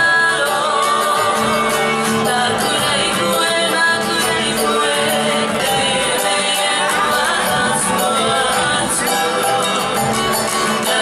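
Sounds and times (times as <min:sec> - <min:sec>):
people singing: 0:00.0 - 0:11.0
strummed string instruments: 0:00.0 - 0:11.0.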